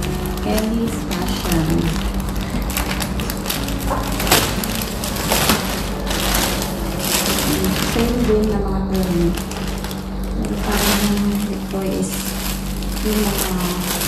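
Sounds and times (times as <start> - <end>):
plastic packaging crinkling: 0.0 - 14.0
steady low hum: 0.0 - 14.0.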